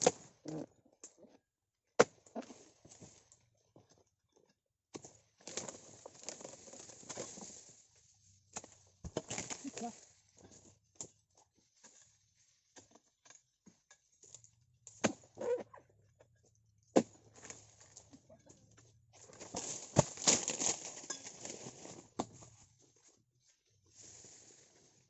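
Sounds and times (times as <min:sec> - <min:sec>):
palm fronds rustling and scraping: 0:05.4 - 0:10.6, 0:19.2 - 0:22.6, 0:23.9 - 0:25.0.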